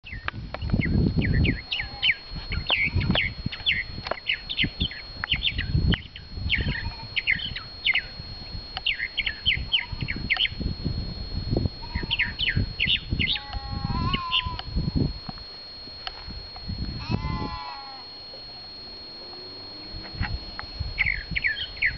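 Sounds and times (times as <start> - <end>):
mockingbird singing: 0.0 - 10.8, 11.8 - 14.8, 20.9 - 21.9
steady high-pitched tone: 0.0 - 21.9
sheep or goat bleating: 1.7 - 2.2, 11.8 - 12.3, 13.3 - 14.6, 17.0 - 18.1.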